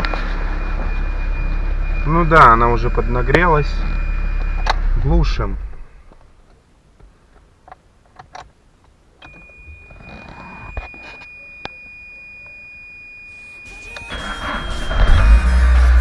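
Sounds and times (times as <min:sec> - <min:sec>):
high electronic beep tone: 0:00.0 - 0:05.8, 0:09.2 - 0:16.0
car engine starting: 0:14.1 - 0:16.0.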